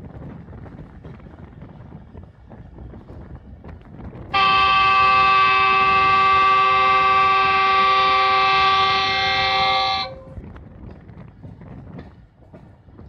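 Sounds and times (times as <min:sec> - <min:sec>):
train running rumble: 0:00.0 - 0:13.0
wind noise: 0:00.0 - 0:13.0
locomotive horn blast: 0:04.3 - 0:10.4.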